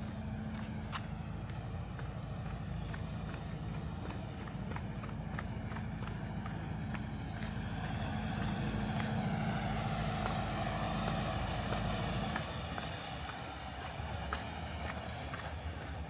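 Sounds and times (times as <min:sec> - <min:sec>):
footsteps on hard path: 0:00.0 - 0:16.0
low steady rumble: 0:00.0 - 0:16.0.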